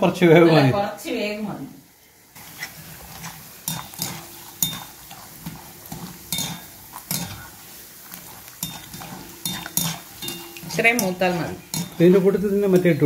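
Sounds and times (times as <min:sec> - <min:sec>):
oil sizzling: 0:00.0 - 0:13.0
skimmer clinking against a pan: 0:03.6 - 0:07.6, 0:08.4 - 0:13.0.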